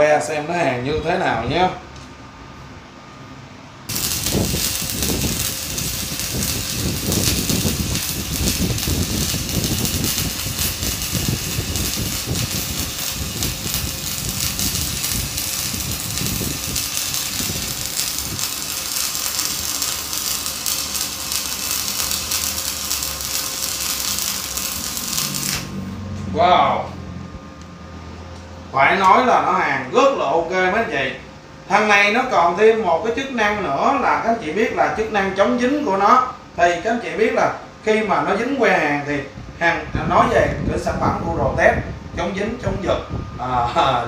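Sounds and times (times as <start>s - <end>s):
welding arc crackling and sizzling: 3.9s - 26.2s.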